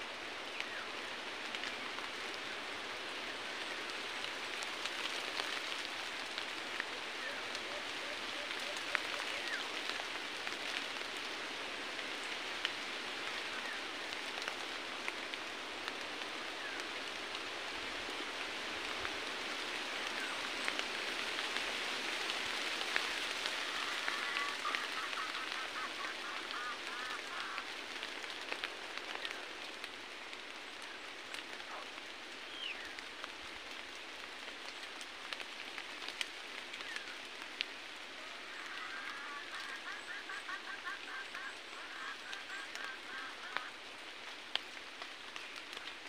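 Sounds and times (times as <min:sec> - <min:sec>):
rain falling on foliage: 0:00.0 - 0:46.0
faint bird calls: 0:06.8 - 0:10.8, 0:23.4 - 0:28.4, 0:30.4 - 0:33.0, 0:38.0 - 0:44.0.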